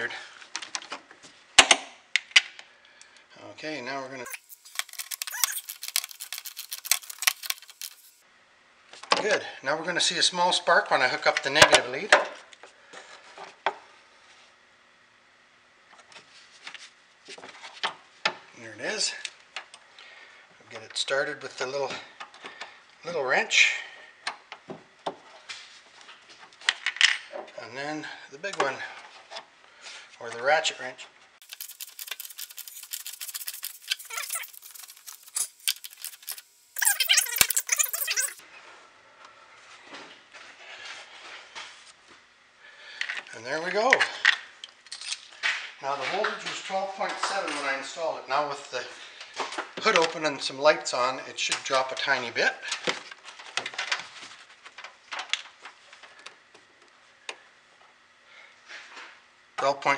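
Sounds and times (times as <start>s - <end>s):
ratchet wrench clicking: 31.4s - 38.4s.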